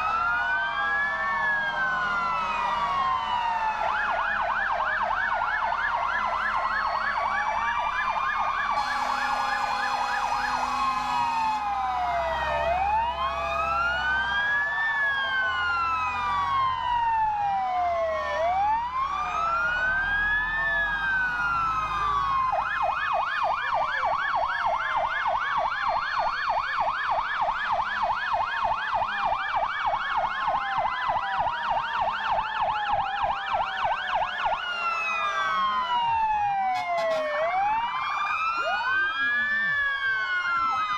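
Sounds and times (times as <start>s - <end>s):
fire truck sirens: 0.0s - 40.9s
truck horn: 8.8s - 11.8s, 36.8s - 37.4s.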